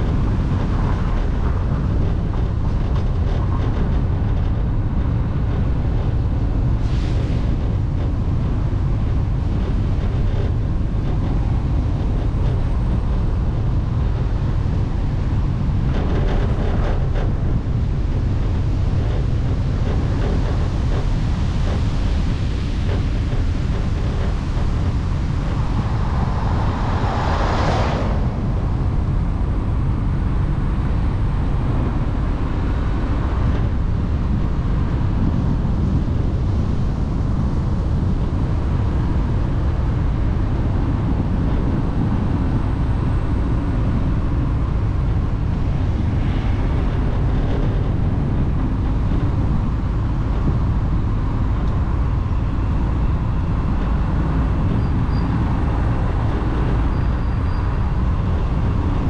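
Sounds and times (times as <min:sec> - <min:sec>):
moving vehicle rumbling: 0:00.0 - 0:59.0
loud whoosh: 0:23.2 - 0:32.7.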